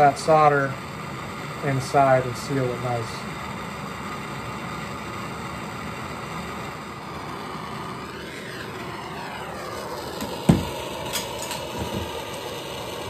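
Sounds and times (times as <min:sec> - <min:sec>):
gas torch hissing: 0:00.0 - 0:13.0
sharp knock: 0:10.5 - 0:10.8.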